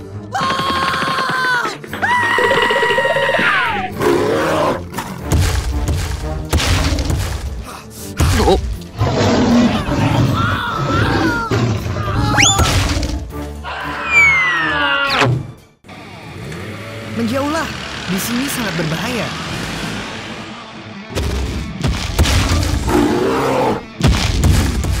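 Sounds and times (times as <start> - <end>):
cartoon background music: 0.0 - 15.8.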